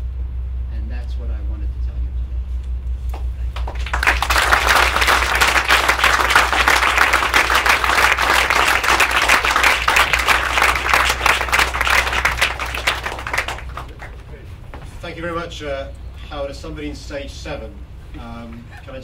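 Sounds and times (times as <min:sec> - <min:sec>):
audience applauding: 0:03.5 - 0:14.5.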